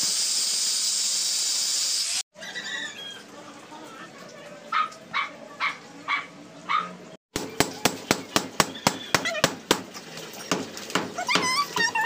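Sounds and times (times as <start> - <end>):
dog barking: 4.7 - 7.0.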